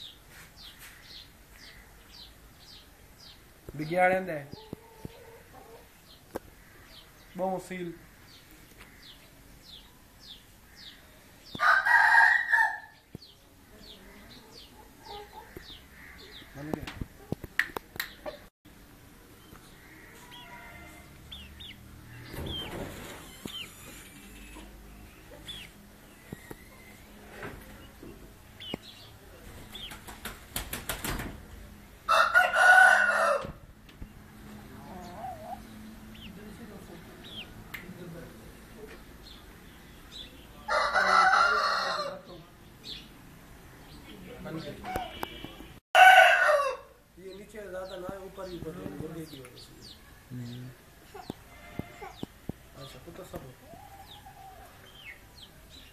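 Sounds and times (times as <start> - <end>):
rooster crowing: 11.6 - 13.0, 19.9 - 21.2, 32.1 - 33.6, 40.7 - 42.2, 46.0 - 47.0
wing-flapping slaps: 29.6 - 31.4.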